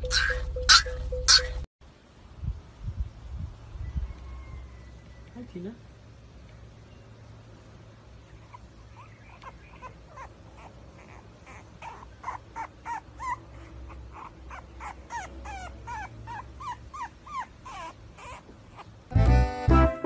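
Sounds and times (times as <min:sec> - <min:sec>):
puppy whimpering: 0:00.0 - 0:01.7, 0:08.3 - 0:19.1.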